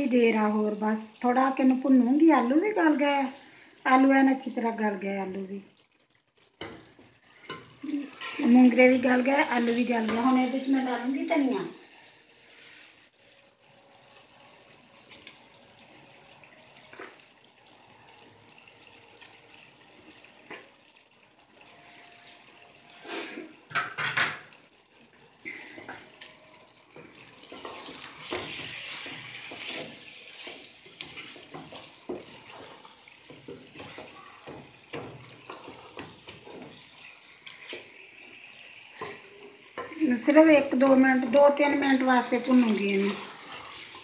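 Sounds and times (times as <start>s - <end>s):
curry sizzling: 0.0s - 44.0s
wooden spoon scraping a pot: 6.6s - 10.9s, 25.4s - 38.3s.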